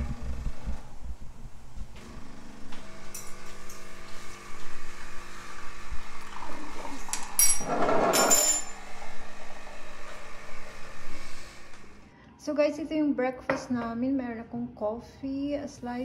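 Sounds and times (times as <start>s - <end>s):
appliance motor hum: 0.0s - 12.1s.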